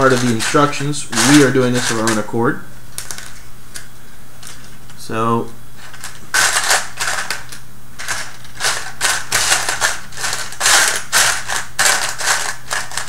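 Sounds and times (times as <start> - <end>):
plastic parts clattering: 0.0 - 2.4, 5.8 - 13.0.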